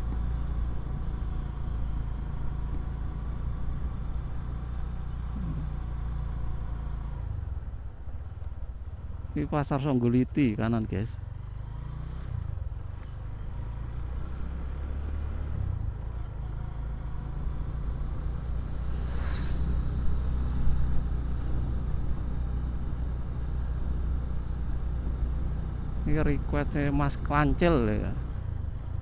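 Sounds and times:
motorcycle engine rumble: 0:00.0 - 0:29.0
passing vehicle rush: 0:11.6 - 0:23.2.

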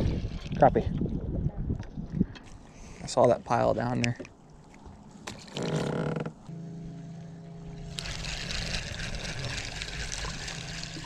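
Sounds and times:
electric trolling motor humming: 0:06.0 - 0:11.0.

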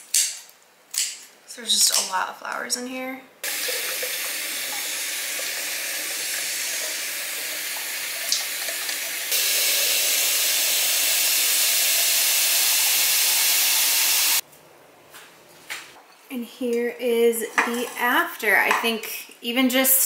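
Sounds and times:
faucet running into sink: 0:03.4 - 0:14.4.

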